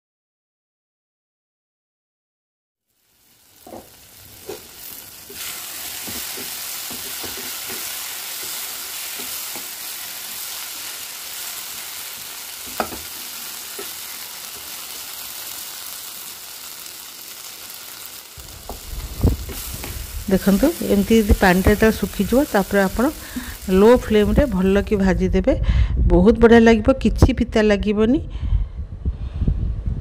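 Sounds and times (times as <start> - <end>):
vegetables sizzling in oil: 2.8 - 25.4
spatula knocking against pan: 12.7 - 13.1.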